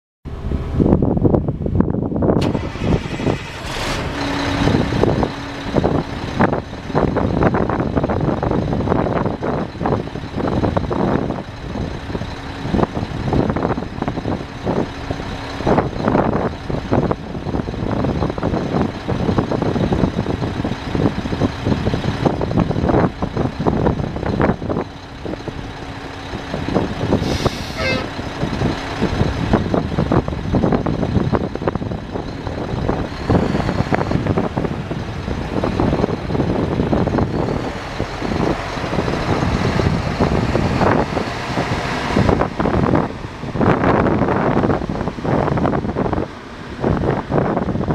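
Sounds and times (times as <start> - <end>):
diesel truck engine idling: 0.3 - 47.9
wind buffeting microphone: 0.3 - 47.9
air hiss: 27.2 - 28.1.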